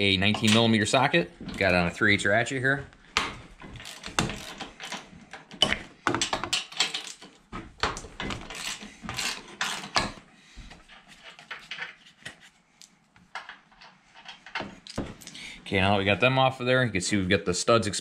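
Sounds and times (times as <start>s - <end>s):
ratchet clicking: 3.8s - 5.0s.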